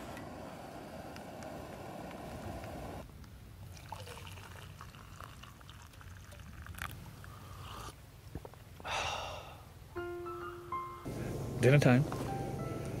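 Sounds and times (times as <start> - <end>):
hot water pouring into mug: 3.8 - 6.9
slurping sip: 6.6 - 8.0
sustained musical notes: 10.0 - 13.0.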